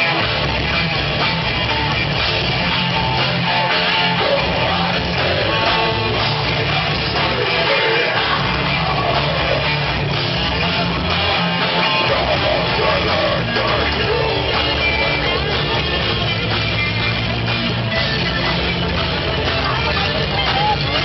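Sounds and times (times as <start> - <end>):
rock band playing: 0.0 - 21.0
singer's vocals: 3.8 - 9.9, 11.7 - 16.0.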